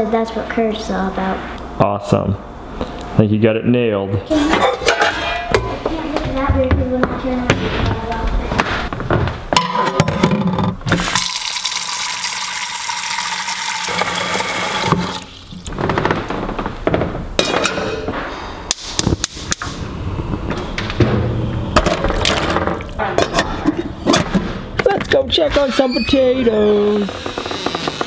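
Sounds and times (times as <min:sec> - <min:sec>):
faucet running water into a pot: 0:11.0 - 0:15.7
metal clanks and knocks: 0:15.7 - 0:18.3.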